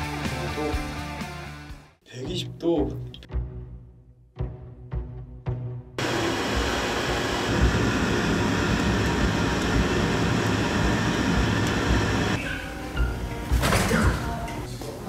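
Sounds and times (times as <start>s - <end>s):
wood fire roaring: 6.0s - 12.4s.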